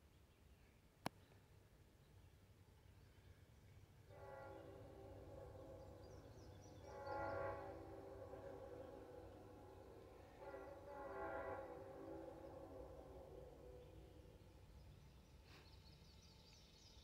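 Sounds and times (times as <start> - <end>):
train air horn: 4.0 - 14.4.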